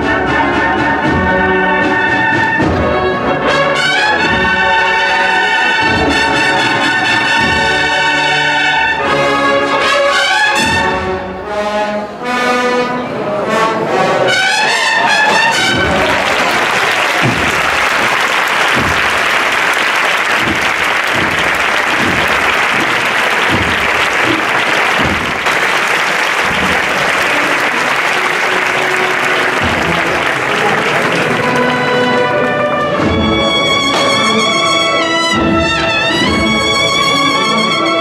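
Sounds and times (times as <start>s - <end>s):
cornet and drum band march: 0.0s - 11.2s, 14.3s - 38.0s
crowd applauding: 14.8s - 35.0s
low thumps: 17.1s - 25.8s.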